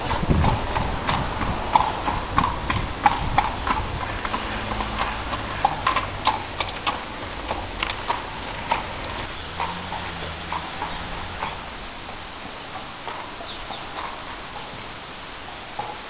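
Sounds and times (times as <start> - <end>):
horse hooves clip-clopping: 0.0 - 16.0.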